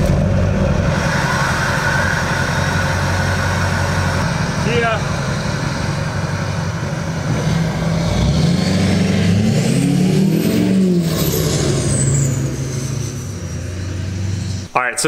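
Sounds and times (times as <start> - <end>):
diesel truck accelerating: 0.0 - 14.7
faint high whine: 0.7 - 8.0.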